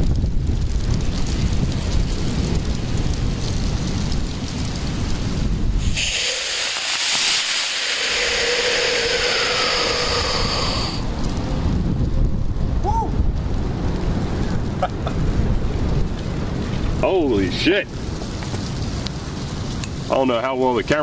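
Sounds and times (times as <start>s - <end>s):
wind buffeting microphone: 0.0s - 21.0s
rocket motor hissing: 5.7s - 11.1s.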